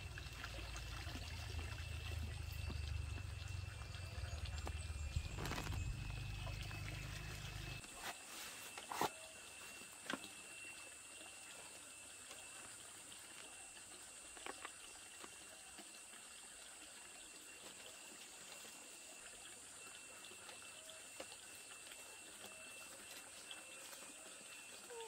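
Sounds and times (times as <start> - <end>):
banana leaves rustling: 5.1 - 9.3.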